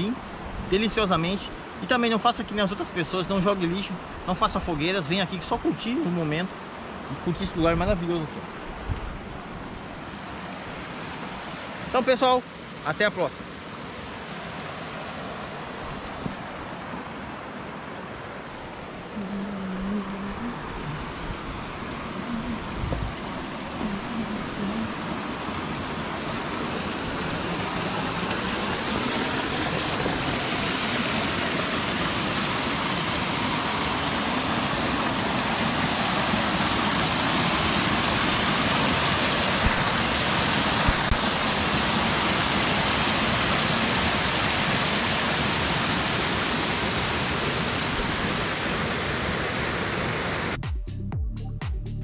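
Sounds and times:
water rushing over rocks: 20.2 - 50.6.

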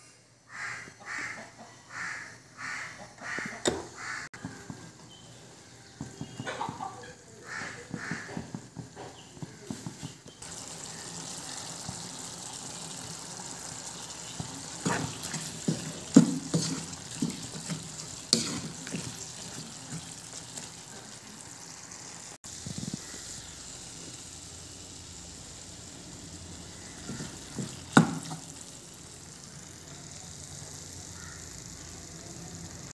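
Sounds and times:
meat sizzling in a pan: 7.5 - 32.9
knocks and scrapes against pan: 14.8 - 20.7.

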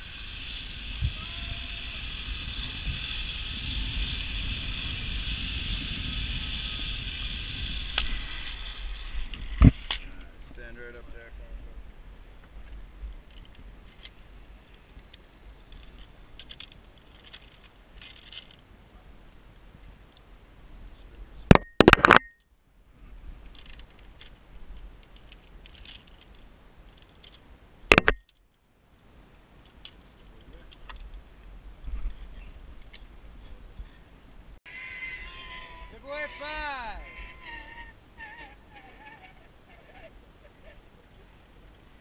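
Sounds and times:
metal carabiners clinking: 0.1 - 10.2, 13.3 - 18.6, 23.5 - 28.7, 29.6 - 31.2.

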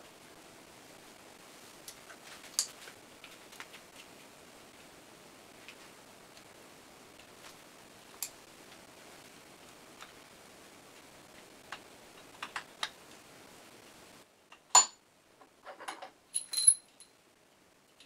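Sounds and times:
ringing metal clinks: 16.3 - 17.2.

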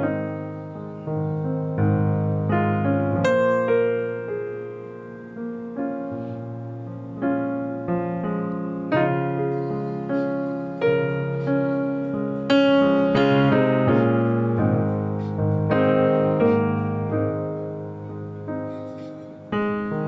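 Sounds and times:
gentle piano music: 0.0 - 20.0.

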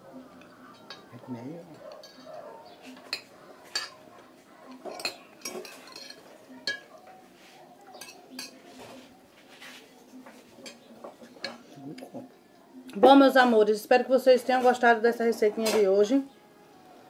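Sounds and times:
spoon clinking on glass dish: 4.7 - 7.0, 8.0 - 8.6.

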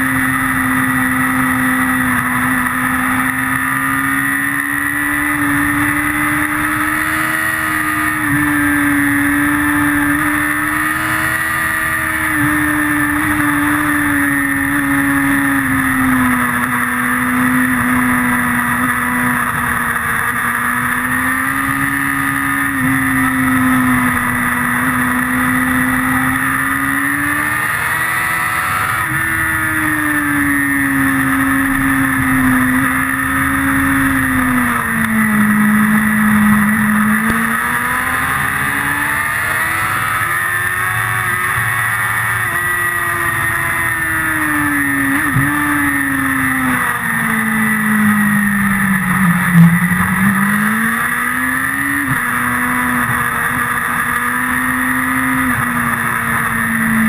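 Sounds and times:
motorcycle engine revving high: 0.0 - 57.0.

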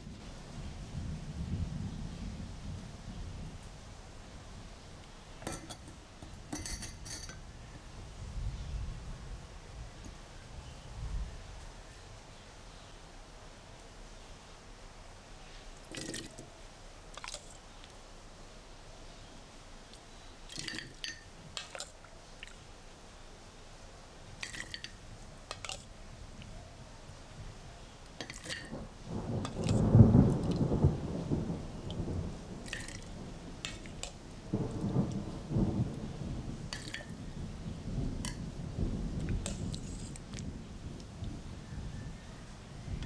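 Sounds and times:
rushing splashing rumble: 28.2 - 43.0.

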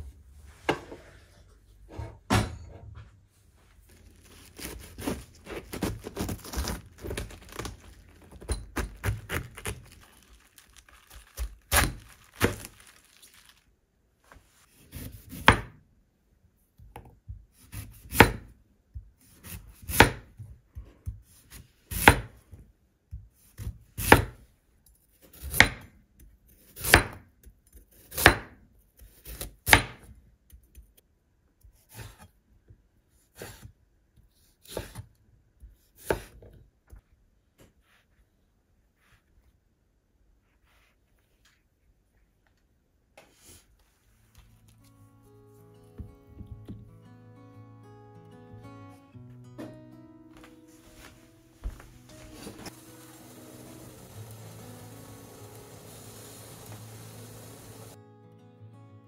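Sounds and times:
knife slicing vegetables: 4.2 - 10.0, 11.0 - 12.7, 35.7 - 36.5.

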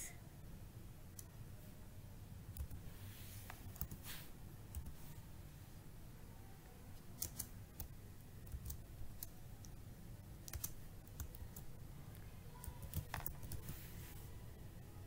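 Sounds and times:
keyboard typing: 2.5 - 2.9, 3.5 - 4.1, 4.7 - 5.1, 7.0 - 9.8, 10.4 - 13.9.

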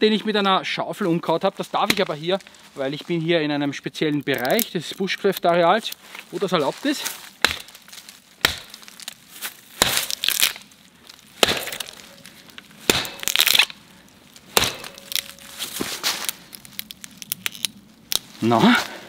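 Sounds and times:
wood crackling: 0.0 - 19.0
axe chopping tree trunk: 1.8 - 2.2, 7.0 - 10.6, 11.4 - 13.8, 14.5 - 16.3.

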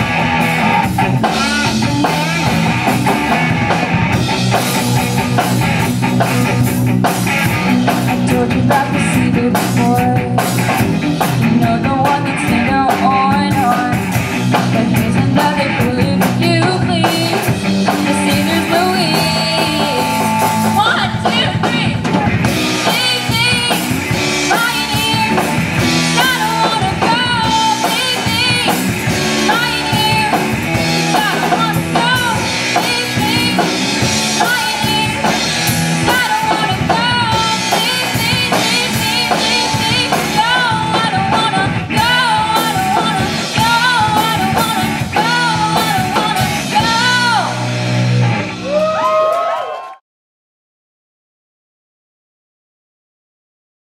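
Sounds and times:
electric bass: 0.0 - 49.7
drum kit: 0.0 - 49.9
electric guitar: 0.0 - 50.0
girl singing lead: 1.2 - 3.5, 7.4 - 47.8.

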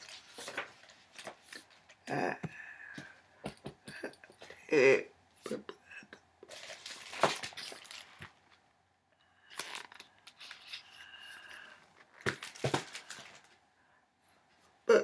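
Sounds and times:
paper rustling and crackling: 0.0 - 1.9, 6.5 - 8.6, 9.5 - 10.9, 12.0 - 13.6.

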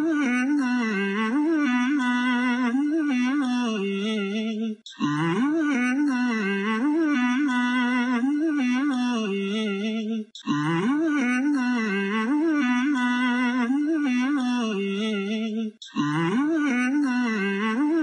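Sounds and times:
person humming a melody: 4.9 - 9.8, 10.4 - 18.0.

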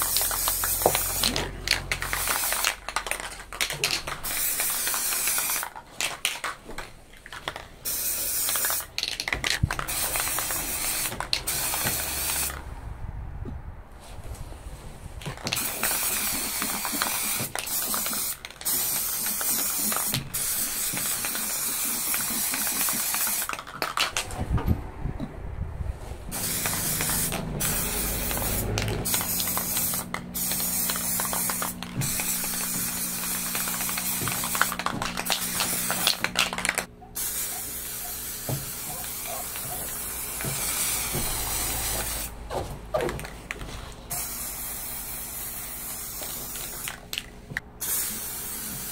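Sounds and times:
aerosol spray can hissing: 0.0 - 3.2, 4.2 - 5.7, 7.8 - 12.6, 15.6 - 23.5, 26.3 - 42.4, 44.1 - 47.0, 47.8 - 48.9.

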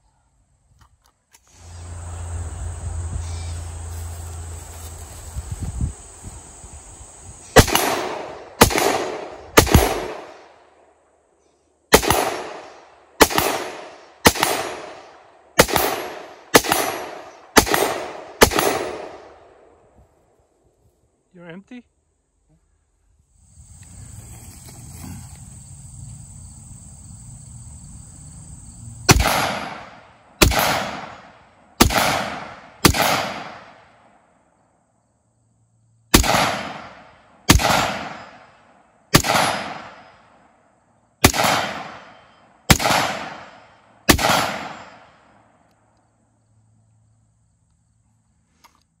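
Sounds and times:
rifle shots with echo: 7.6 - 10.6, 11.9 - 19.6, 29.1 - 34.1, 36.1 - 40.3, 41.2 - 45.4.

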